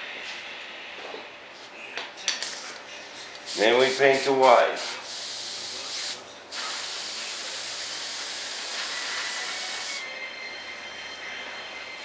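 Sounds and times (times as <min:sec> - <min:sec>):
spray gun hissing: 0:03.5 - 0:10.0.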